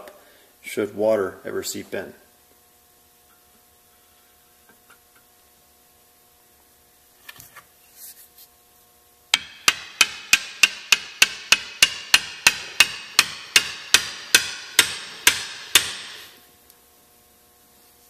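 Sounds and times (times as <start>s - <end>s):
hammer tapping on metal: 9.3s - 16.3s.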